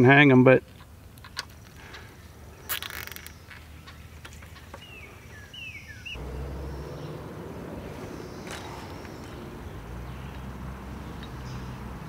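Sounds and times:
bird chirps: 0:02.5 - 0:12.0
zip tie pulled tight: 0:02.7 - 0:03.4.

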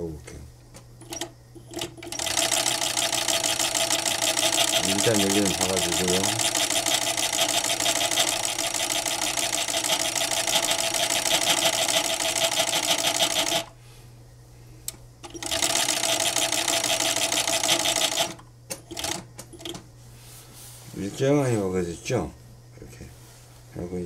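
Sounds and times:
sewing machine stitching: 0:01.1 - 0:13.7, 0:15.3 - 0:19.2.

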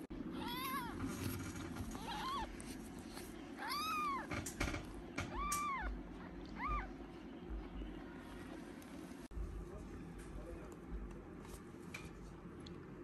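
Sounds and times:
kitten mewing: 0:01.9 - 0:02.6, 0:03.6 - 0:04.3, 0:05.2 - 0:07.0.

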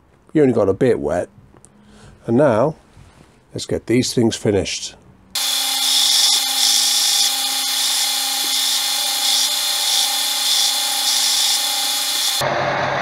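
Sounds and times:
wood sanding hiss: 0:05.4 - 0:12.4
belt sander running: 0:05.4 - 0:12.7.

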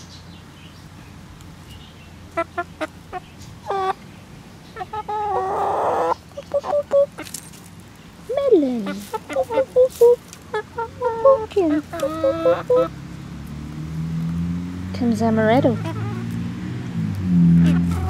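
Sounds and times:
chickens clucking: 0:01.7 - 0:07.6, 0:08.2 - 0:13.2, 0:15.4 - 0:16.5, 0:17.6 - 0:18.0
chicken squawk: 0:02.4 - 0:04.0, 0:04.8 - 0:07.3, 0:08.8 - 0:13.0, 0:15.7 - 0:16.4, 0:17.6 - 0:18.0.

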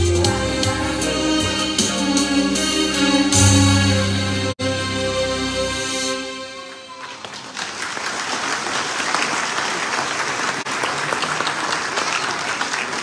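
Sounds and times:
large audience applauding: 0:06.9 - 0:13.0.

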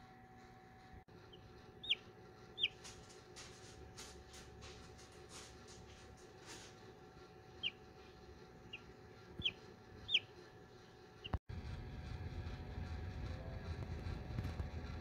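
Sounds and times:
chick peeping: 0:01.3 - 0:03.1, 0:07.5 - 0:08.0, 0:08.6 - 0:10.4, 0:11.2 - 0:11.4.

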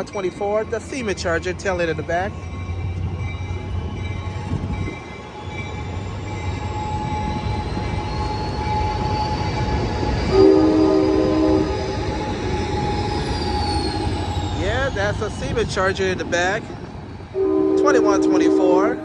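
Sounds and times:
train coaches rumbling: 0:00.0 - 0:19.0
locomotive whine rising: 0:01.9 - 0:19.0
train horn blast: 0:10.3 - 0:12.2, 0:17.4 - 0:19.0.

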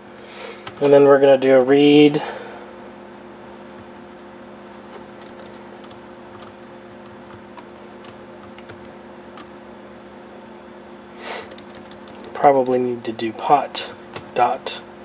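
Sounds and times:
steady low hum: 0:00.0 - 0:15.0
laptop keyboard clicks: 0:11.5 - 0:12.8.

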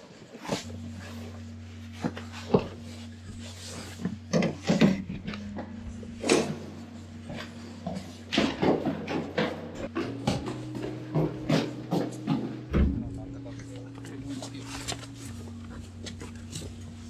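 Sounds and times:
steady low hum: 0:00.0 - 0:17.0
knocks and clunks: 0:04.1 - 0:15.1.

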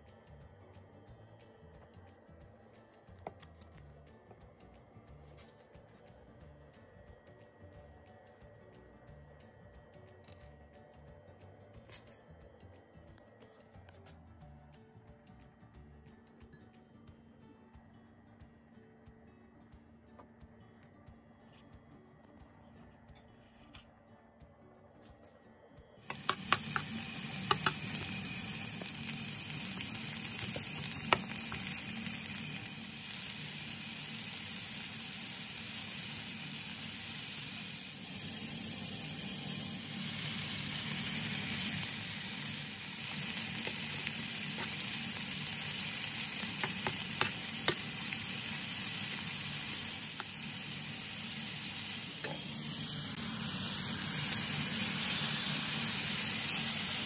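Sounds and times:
meat and onion sizzling in oil: 0:26.0 - 0:57.0
utensil clicking against pan: 0:26.1 - 0:27.8.

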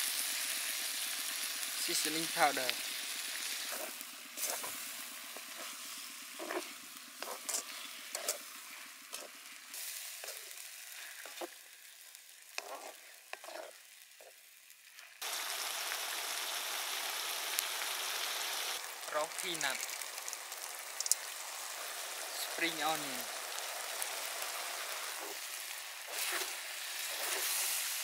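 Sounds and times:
food sizzling in a wok: 0:00.0 - 0:28.0
spatula scraping a pan: 0:06.4 - 0:08.5, 0:10.2 - 0:11.5, 0:12.5 - 0:14.4, 0:26.1 - 0:27.8.

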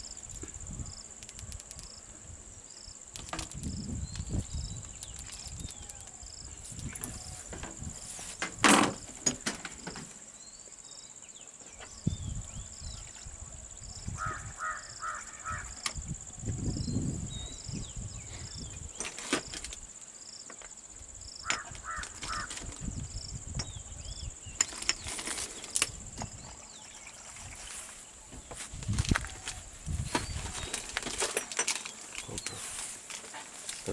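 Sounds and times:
insects droning: 0:00.0 - 0:33.9
clicks and knocks from handling supplies: 0:24.6 - 0:26.3, 0:28.4 - 0:33.9.

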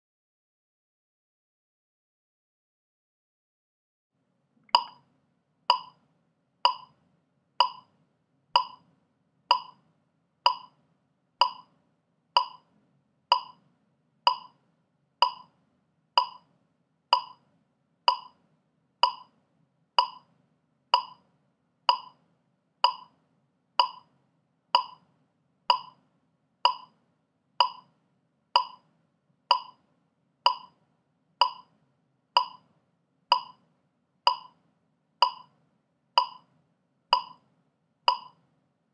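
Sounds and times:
metronome clicks: 0:04.7 - 0:05.0, 0:05.7 - 0:06.0, 0:06.7 - 0:07.0, 0:07.6 - 0:07.9, 0:08.6 - 0:08.8, 0:09.5 - 0:09.8, 0:10.5 - 0:10.8, 0:11.4 - 0:11.7, 0:12.4 - 0:12.6, 0:13.3 - 0:13.6, 0:14.3 - 0:14.6, 0:15.2 - 0:15.5, 0:16.2 - 0:16.5, 0:17.2 - 0:17.4, 0:18.1 - 0:18.4, 0:19.0 - 0:19.3, 0:20.0 - 0:20.3, 0:21.0 - 0:21.2, 0:21.9 - 0:22.2, 0:22.8 - 0:23.1, 0:23.8 - 0:24.1, 0:24.8 - 0:25.0, 0:25.7 - 0:26.0, 0:26.7 - 0:27.0, 0:27.6 - 0:27.9, 0:28.6 - 0:28.8, 0:29.5 - 0:29.8, 0:30.5 - 0:30.8, 0:31.4 - 0:31.7, 0:32.4 - 0:32.7, 0:33.3 - 0:33.6, 0:34.3 - 0:34.6, 0:35.2 - 0:35.5, 0:36.2 - 0:36.5, 0:37.2 - 0:37.4, 0:38.1 - 0:38.4.

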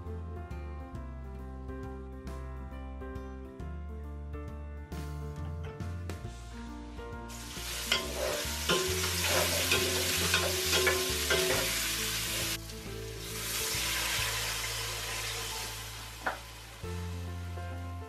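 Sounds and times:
vegetables sizzling in oil: 0:07.3 - 0:17.5
spatula scraping pan: 0:07.8 - 0:11.8.

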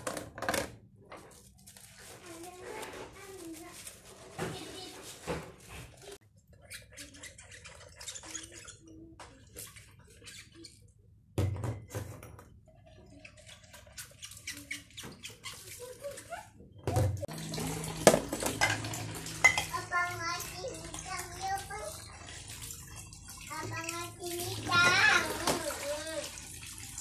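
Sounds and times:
glass and plastic clinking: 0:16.9 - 0:19.9
water splashing: 0:17.2 - 0:27.0
running water rushing: 0:17.3 - 0:27.0.

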